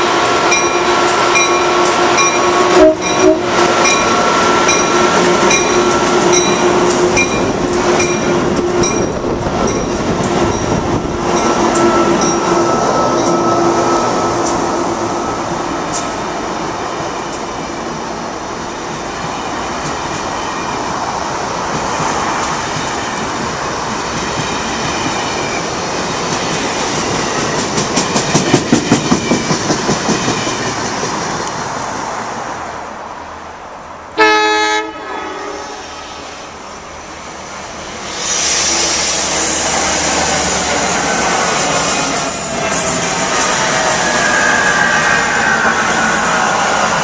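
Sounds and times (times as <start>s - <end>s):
train horn blast: 0.0s - 8.0s, 34.2s - 36.2s
electric train rushing: 0.0s - 47.0s
passenger train rushing past: 0.0s - 47.0s
train wheels clacking over rail joints: 21.6s - 31.7s.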